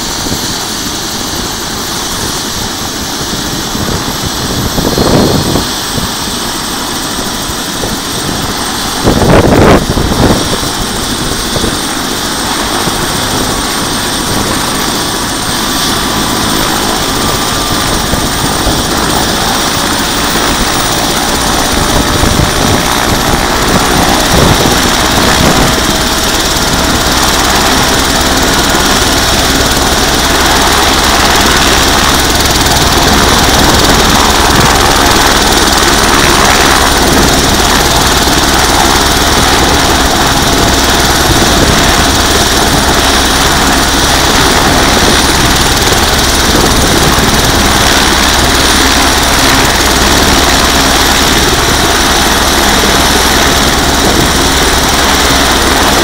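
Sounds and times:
helicopter engine and rotor: 0.0s - 56.0s.

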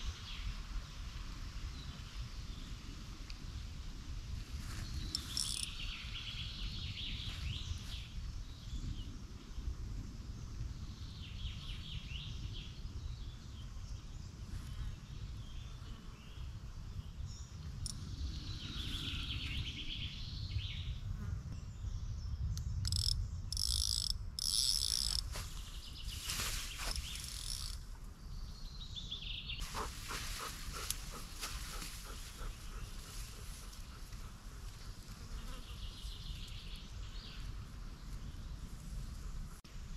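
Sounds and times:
insects buzzing: 4.6s - 6.4s, 22.8s - 28.1s, 29.6s - 36.7s
birds chirping: 21.6s - 39.3s
short rustles: 25.2s - 27.8s.

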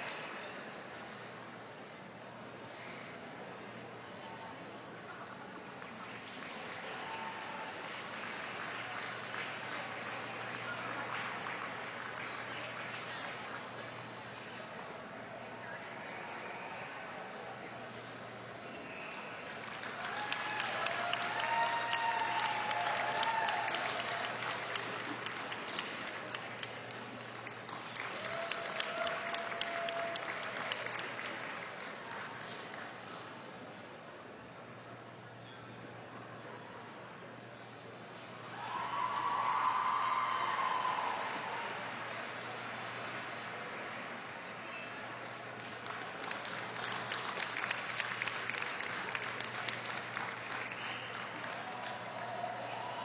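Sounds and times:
audience applauding: 5.7s - 14.2s, 18.9s - 33.2s, 38.5s - 53.0s.

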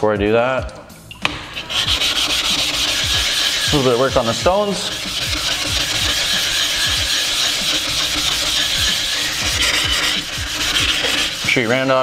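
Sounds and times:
metal plate scraping on waterstone: 1.2s - 12.0s.

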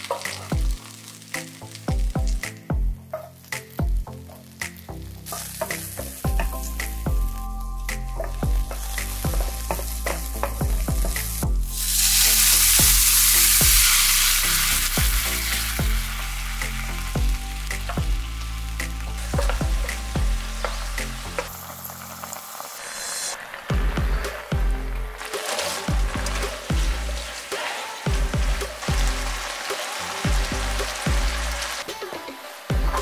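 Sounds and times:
food sizzling in hot oil: 0.0s - 33.0s
sauce hissing in pan: 4.7s - 33.0s
stirring in pan: 23.4s - 33.0s.

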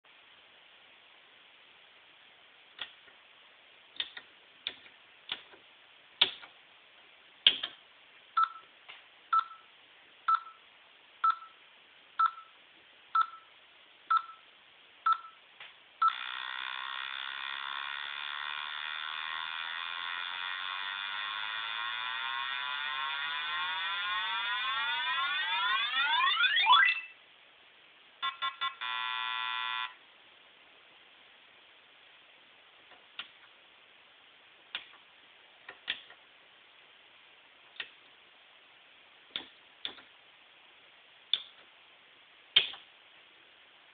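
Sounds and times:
buzzy electronic tone sweeping in pitch: 18.1s - 27.2s
electronic beeps: 22.5s - 27.2s, 28.2s - 30.0s.

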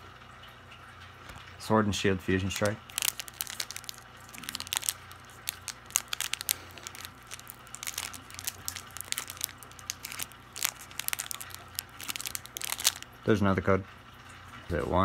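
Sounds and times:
foil wrapper crinkling and tearing: 2.4s - 13.1s.

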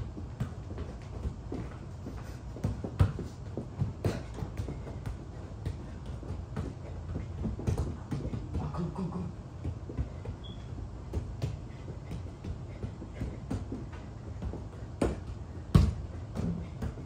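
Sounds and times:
soccer ball thuds on concrete: 0.0s - 9.0s, 9.6s - 17.0s
sneaker scuffs and squeaks: 10.2s - 11.0s.

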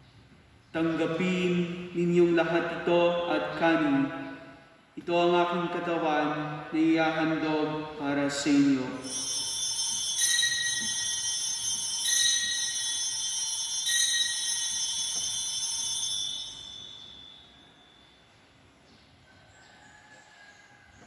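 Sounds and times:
altar bells ringing: 8.7s - 18.8s.

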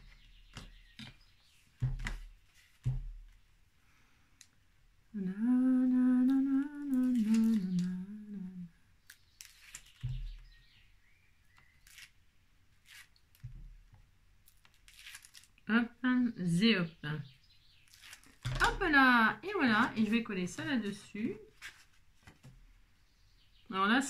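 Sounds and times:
woman humming a tune: 5.1s - 8.8s.

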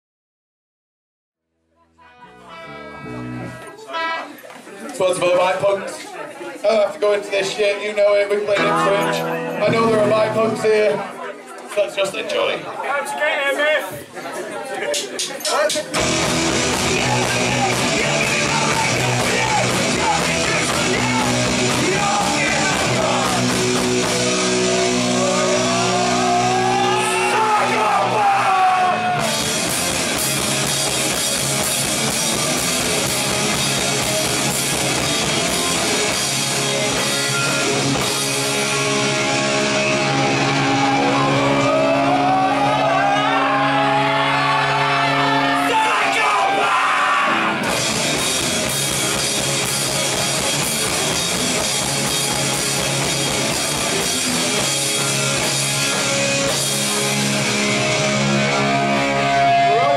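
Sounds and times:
rising sliding guitar notes: 2.2s - 3.6s, 8.5s - 11.1s, 16.0s - 45.6s, 47.2s - 59.9s
punk band playing live: 8.5s - 11.1s, 15.4s - 59.9s.

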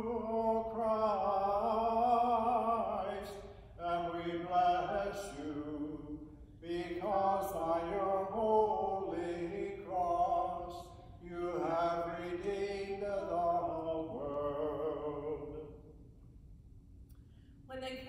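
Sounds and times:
man singing hymn: 0.0s - 15.8s.

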